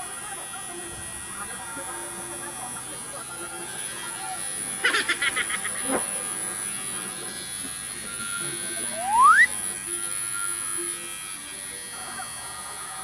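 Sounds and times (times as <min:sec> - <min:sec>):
tattoo machine buzzing: 0:00.0 - 0:13.0
rising whistle-like tone: 0:08.9 - 0:09.6.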